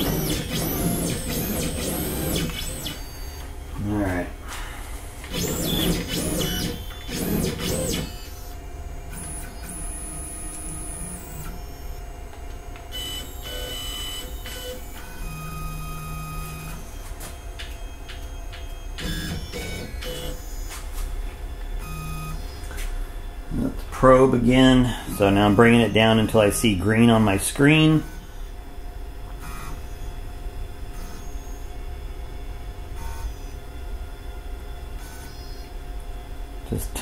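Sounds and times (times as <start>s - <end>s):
stepper motors whining: 0.0s - 4.3s, 5.2s - 21.1s, 30.9s - 31.8s.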